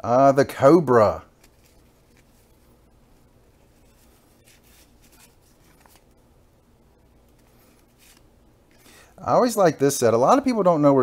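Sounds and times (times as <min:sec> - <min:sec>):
low room hum: 0:00.0 - 0:11.0
rustling of cardboard cards: 0:01.4 - 0:02.8, 0:03.6 - 0:06.1, 0:07.3 - 0:08.9
cards scraping against each other: 0:03.7 - 0:06.1, 0:07.3 - 0:08.9.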